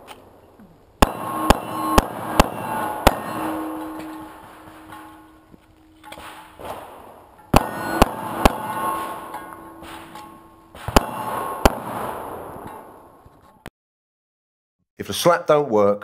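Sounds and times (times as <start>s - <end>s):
handgun shots echoing: 1.0s - 5.4s, 6.0s - 13.0s.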